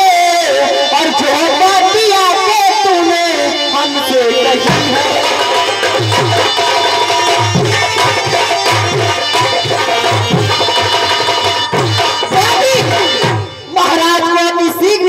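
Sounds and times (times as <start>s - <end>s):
hand drum beating: 4.6s - 13.5s.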